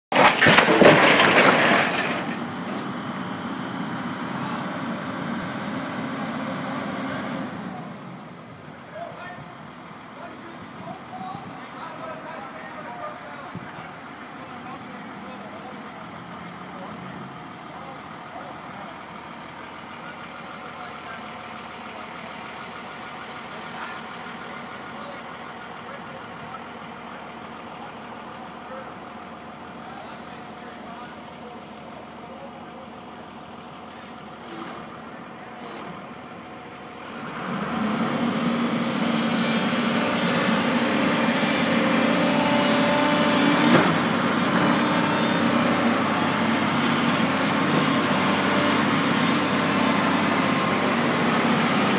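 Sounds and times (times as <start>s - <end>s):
debris cracking and crunching: 0.1s - 2.9s
excavator diesel engine running: 0.1s - 51.9s.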